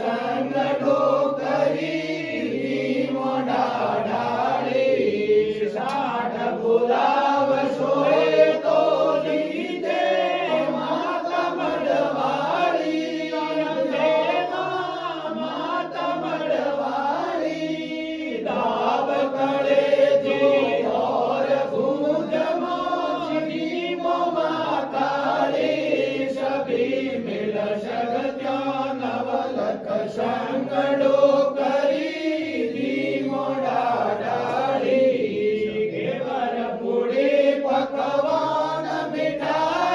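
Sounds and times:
voices chanting a hymn: 0.0s - 39.9s.

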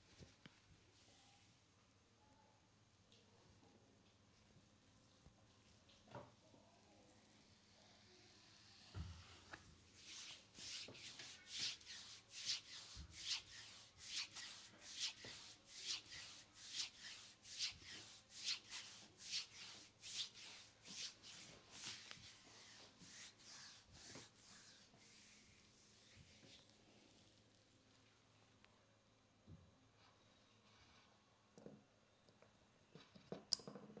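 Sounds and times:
hands rubbing skin: 9.6s - 27.5s.

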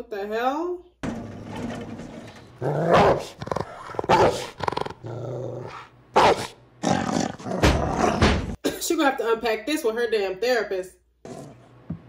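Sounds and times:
dog snarling and growling: 2.6s - 8.6s, 11.2s - 11.6s.

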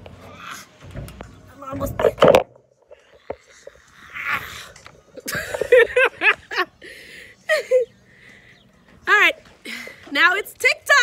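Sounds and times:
woman laughing: 5.2s - 6.7s, 7.4s - 8.0s.

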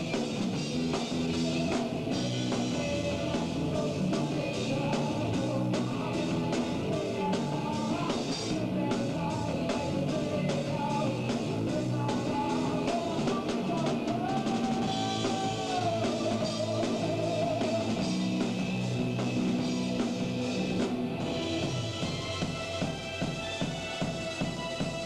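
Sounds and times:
live rock band playing: 0.0s - 25.0s
person singing: 0.7s - 18.6s
drum kit and cymbal hits: 14.3s - 25.0s.

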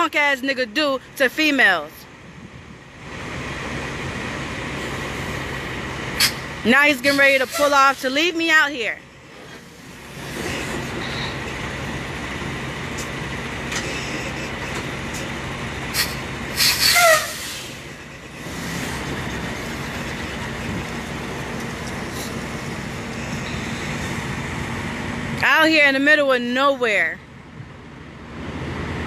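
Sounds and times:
diesel truck engine: 0.0s - 29.0s
air brake hissing: 6.2s - 6.5s, 15.9s - 17.9s
falling squeal: 16.6s - 17.8s.

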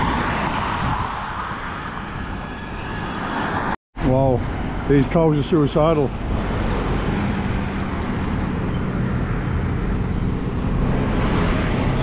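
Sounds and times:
tyre noise on road: 0.0s - 12.0s
truck engine hum: 4.3s - 12.0s.

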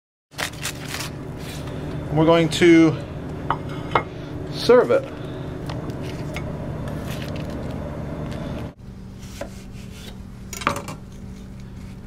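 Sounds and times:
low background hum: 0.4s - 12.0s
knife on wooden cutting board: 9.2s - 10.2s.

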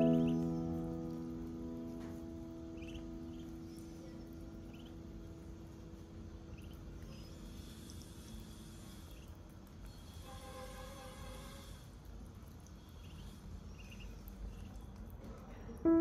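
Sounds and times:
duckling peeping: 0.0s - 1.2s, 2.6s - 8.4s, 9.0s - 10.2s, 12.6s - 15.0s
keyboard chord ringing: 0.0s - 3.6s.

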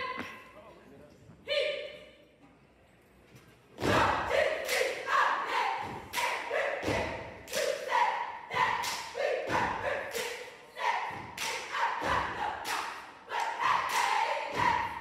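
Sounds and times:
group shouting a chant: 3.8s - 15.0s.

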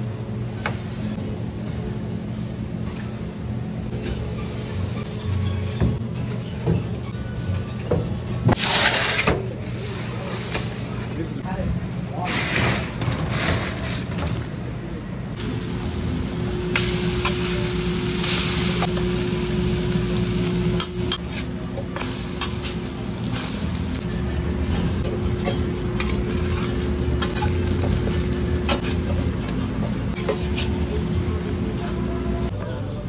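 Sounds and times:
bacon and eggs sizzling on griddle: 15.4s - 29.4s.

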